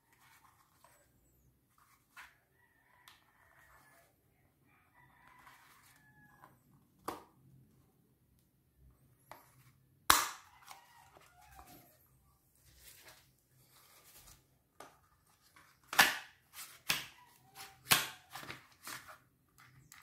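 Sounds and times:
loud plastic snap: 10.1s - 10.5s, 15.9s - 16.3s.

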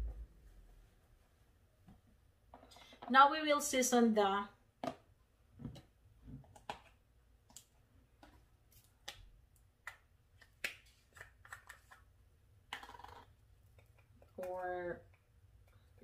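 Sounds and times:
containers clicking and tapping: 9.9s - 12.1s.

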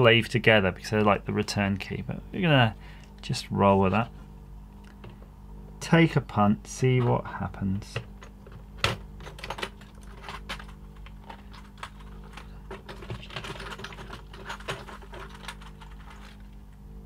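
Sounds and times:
keyboard keys clicking: 8.8s - 16.5s.

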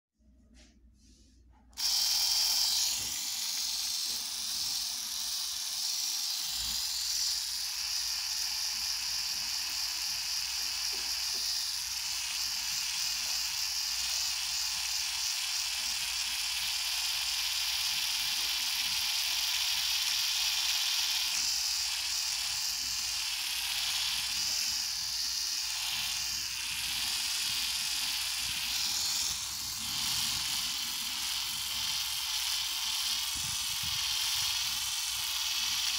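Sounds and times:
electric epilator whirring: 1.7s - 35.9s.

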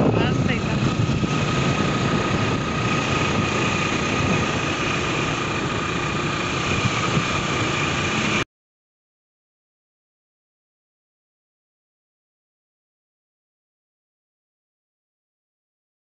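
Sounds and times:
motorbike engine: 0.0s - 8.4s
thin steady whine: 0.0s - 8.4s
wind noise: 0.0s - 8.4s.

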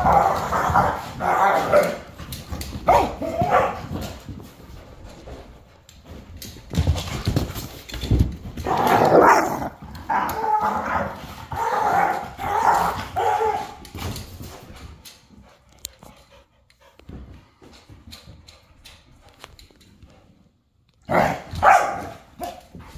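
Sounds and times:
dogs barking: 2.9s - 3.8s, 21.1s - 22.5s.

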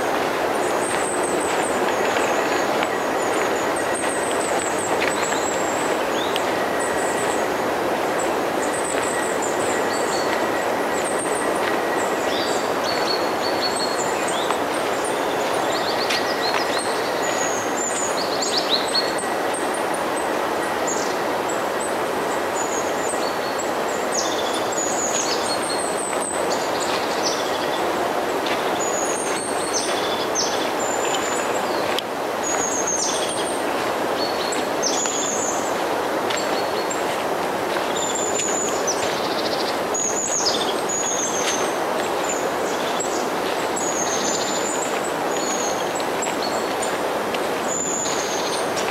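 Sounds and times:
small birds chirping: 8.2s - 19.8s, 22.6s - 48.9s.

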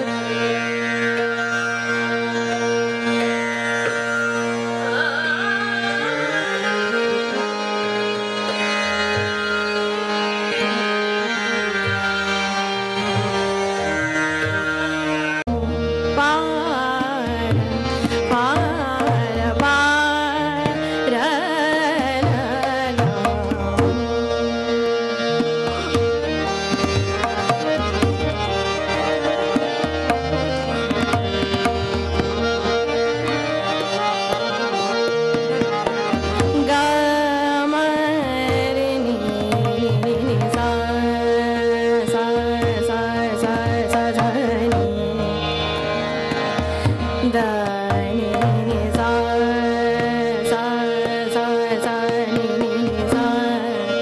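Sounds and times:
tanpura and harmonium drone: 0.0s - 54.0s
woman singing: 4.7s - 7.4s, 15.5s - 24.7s, 36.4s - 45.8s, 46.6s - 54.0s
tabla strokes: 17.0s - 53.7s.

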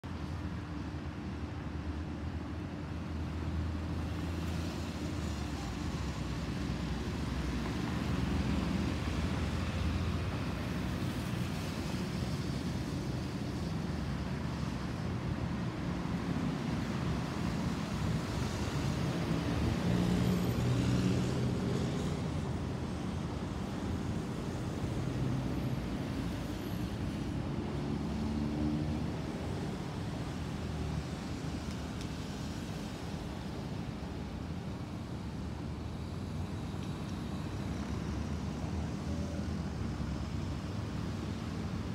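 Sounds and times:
road traffic hum: 0.0s - 41.9s.

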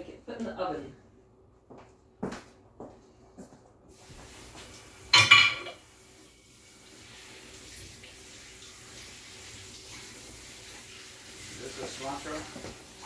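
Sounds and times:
tap water running into sink: 4.0s - 13.0s
dishes clattering: 5.1s - 5.8s.

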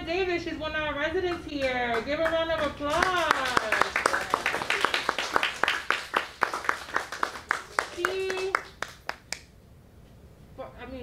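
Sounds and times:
audience applauding: 1.9s - 9.5s
voice: 7.8s - 8.6s, 10.6s - 11.0s.

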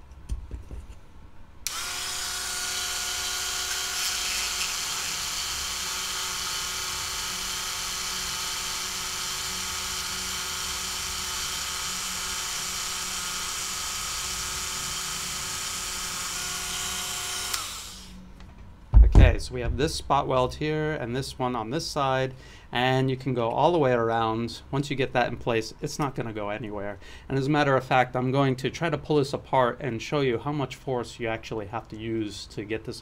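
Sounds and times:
rotary tool high whine: 1.6s - 18.2s.

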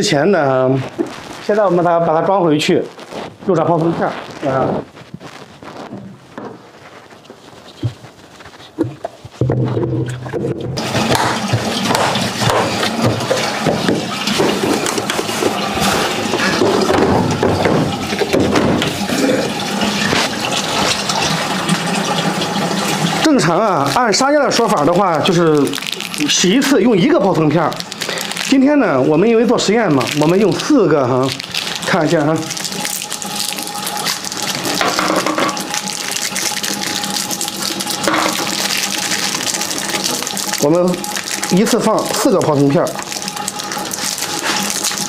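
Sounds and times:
water rushing: 10.8s - 45.0s.

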